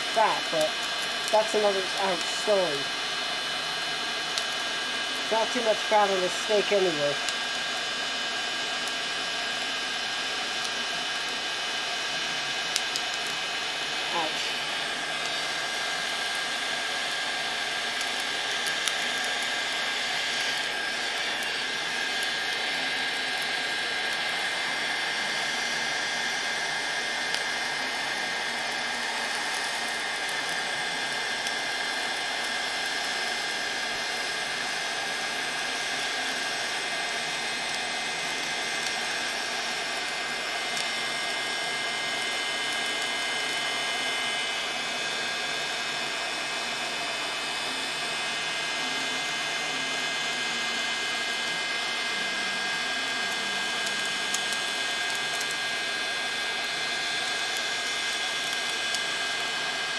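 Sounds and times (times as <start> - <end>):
rush of hot air: 0.0 - 47.4
heat gun fan whine: 0.0 - 59.9.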